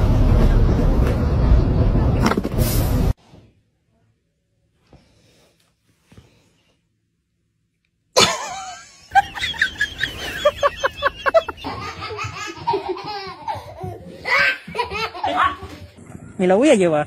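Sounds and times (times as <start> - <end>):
person laughing hard: 8.2 - 15.8.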